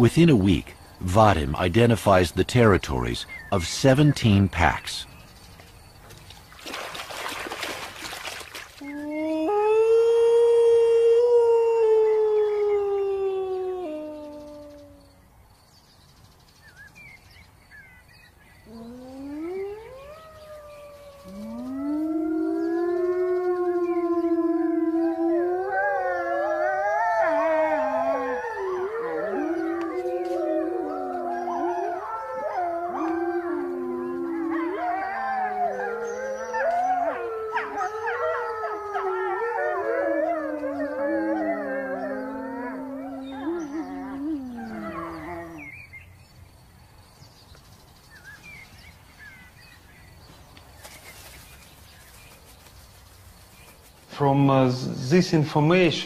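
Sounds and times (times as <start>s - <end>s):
wolves howling: 8.8s - 15.1s, 18.6s - 45.9s.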